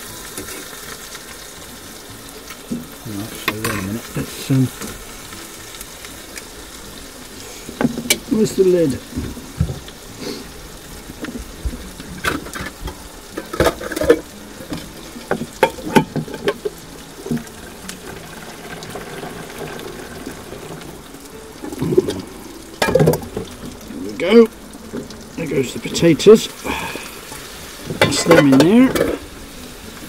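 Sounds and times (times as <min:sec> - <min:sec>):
faint sizzle: 0:00.0 - 0:30.0
utensil clinking on frying pan: 0:28.0 - 0:29.2.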